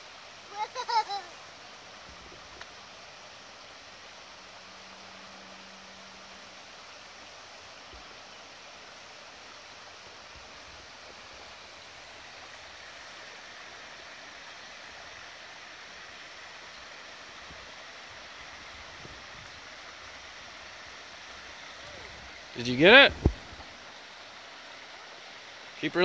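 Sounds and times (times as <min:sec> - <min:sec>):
rushing outdoor background noise: 0:00.0 - 0:26.0
faint low bumps: 0:21.8 - 0:23.8.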